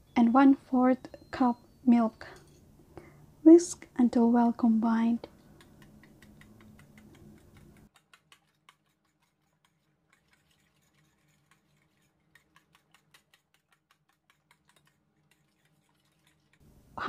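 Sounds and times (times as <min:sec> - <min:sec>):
fork clicking against glass bowl: 0:05.6 - 0:10.3, 0:12.3 - 0:15.4.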